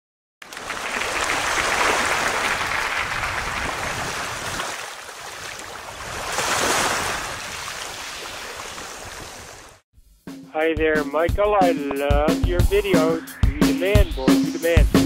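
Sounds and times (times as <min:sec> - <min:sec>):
rushing hissing noise: 0:12.8 - 0:15.0.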